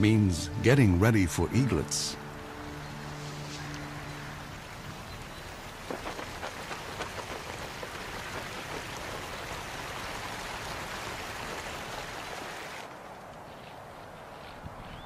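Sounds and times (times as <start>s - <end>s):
water splashing: 3.0s - 12.9s
water rushing down spillway: 4.5s - 12.9s.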